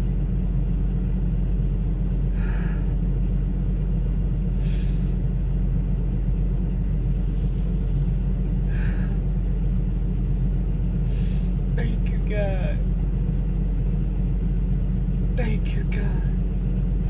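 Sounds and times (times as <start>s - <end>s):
diesel engine idling: 0.0s - 17.0s
short breaths: 2.3s - 3.0s, 4.6s - 5.2s, 7.2s - 9.3s, 11.0s - 11.6s.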